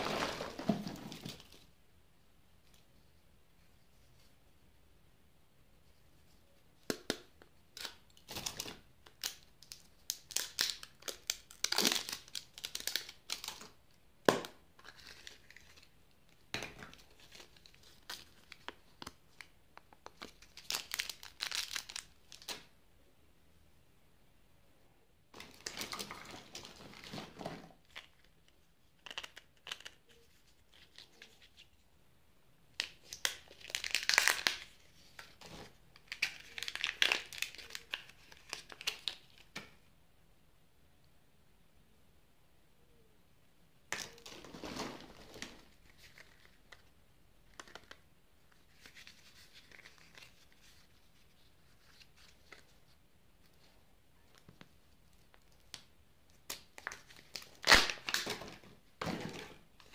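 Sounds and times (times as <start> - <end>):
plastic wrappers crinkling and tearing: 7.8 - 13.8, 16.8 - 22.7, 32.8 - 39.5, 55.2 - 59.9.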